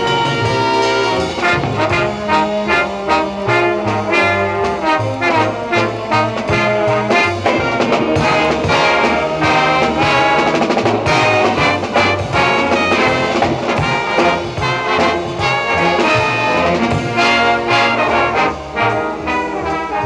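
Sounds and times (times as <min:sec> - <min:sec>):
school band playing: 0:00.0 - 0:20.0.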